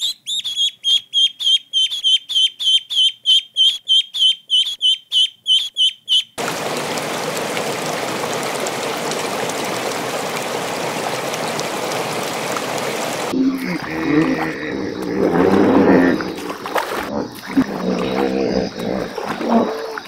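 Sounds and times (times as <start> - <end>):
goslings peeping: 0.0 - 6.4
bubbling aquarium water: 6.4 - 20.0.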